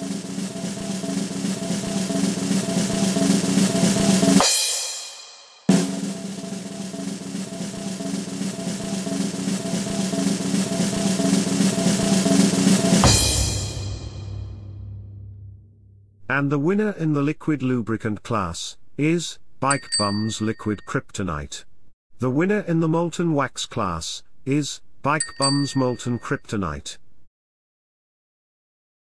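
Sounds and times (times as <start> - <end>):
snare drum roll: 0.0 - 15.1.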